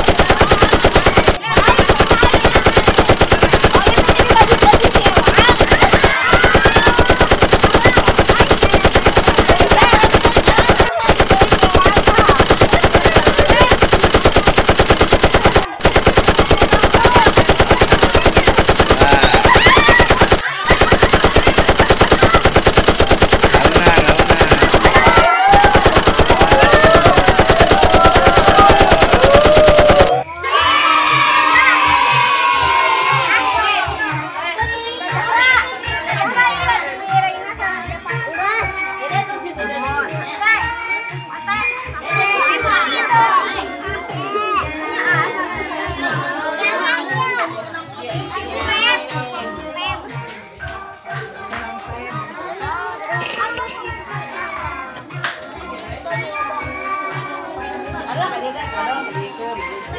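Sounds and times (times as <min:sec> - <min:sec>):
rapid sharp rattle: 0:00.0 - 0:30.2
faint children's voices: 0:00.0 - 0:59.9.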